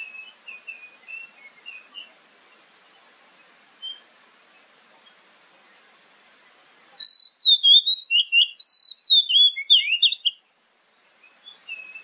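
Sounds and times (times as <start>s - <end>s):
bird singing whistled notes: 0.0s - 2.6s, 3.8s - 4.1s, 7.0s - 10.4s, 11.0s - 12.0s.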